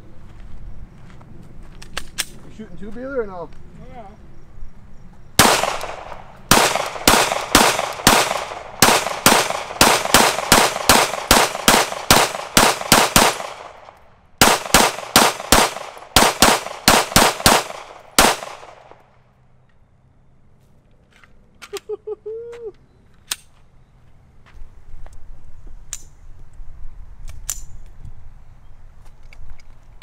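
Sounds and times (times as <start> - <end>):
pistol fired rapidly: 5.4 - 18.9.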